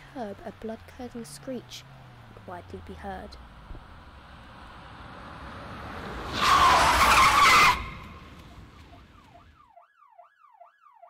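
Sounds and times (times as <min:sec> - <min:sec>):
car approaching: 0:00.0 - 0:09.6
tyres screeching: 0:06.2 - 0:08.4
siren wailing: 0:06.2 - 0:11.0.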